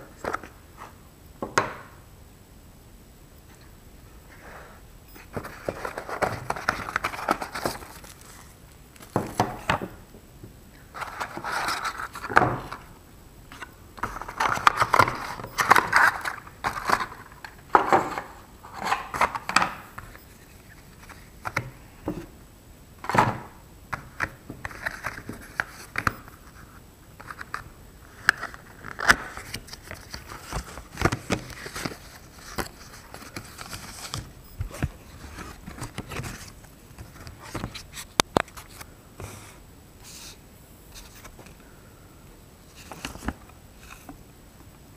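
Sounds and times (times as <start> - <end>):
cardboard and paper rustling: 5.2 - 10.0, 10.9 - 12.9, 13.5 - 22.3, 24.2 - 39.5.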